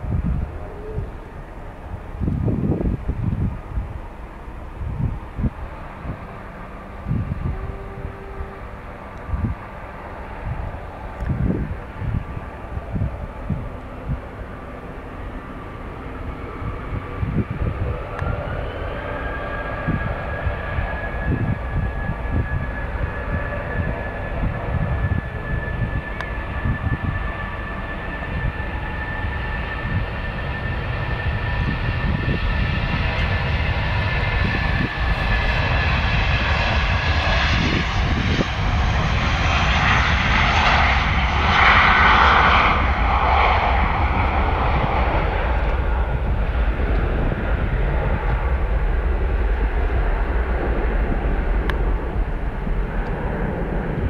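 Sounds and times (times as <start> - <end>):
jet engines spooling up: 0.0 - 54.0.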